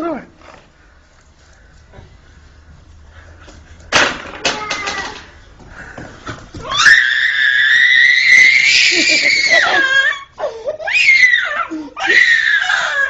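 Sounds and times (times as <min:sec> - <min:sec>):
child wailing: 0:04.5 - 0:05.2, 0:06.7 - 0:13.0
child screaming: 0:06.7 - 0:13.0.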